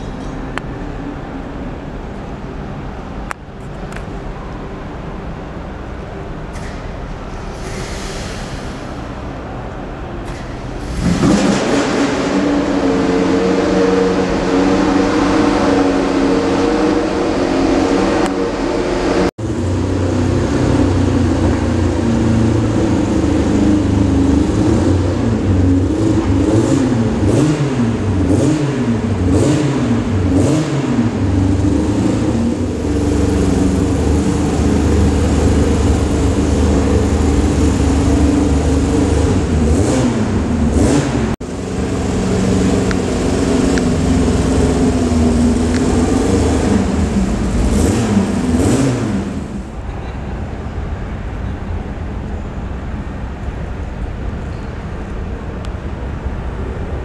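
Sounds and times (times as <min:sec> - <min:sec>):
background noise: 0:00.0 - 0:57.0
car engine revving: 0:10.2 - 0:49.8.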